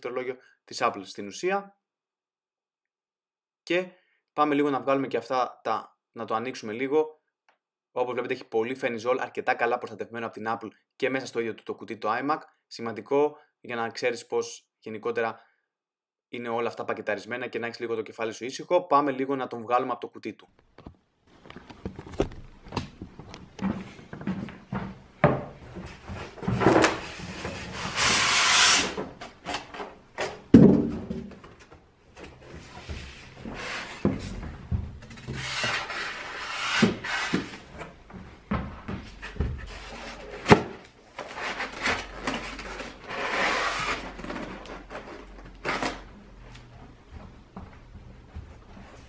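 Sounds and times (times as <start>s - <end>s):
cardboard box scraping and rubbing: 25.9s - 29.8s, 32.6s - 34.1s, 35.1s - 37.7s, 41.2s - 45.9s.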